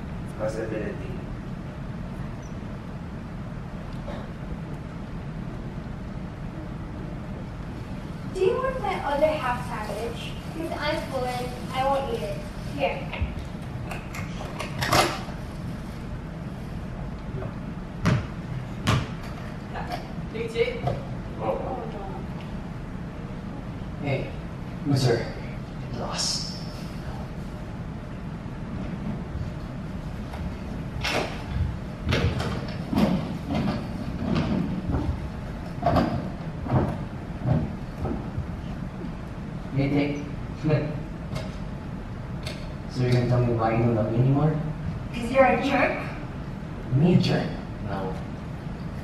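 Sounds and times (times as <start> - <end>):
steady low hum: 0.0 - 49.0
chairs knocking and scraping: 30.2 - 38.8.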